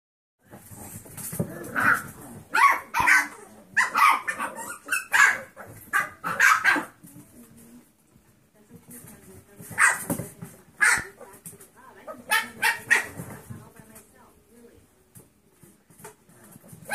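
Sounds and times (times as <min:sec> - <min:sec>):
puppies barking and yipping: 0:01.8 - 0:07.0, 0:12.2 - 0:13.2.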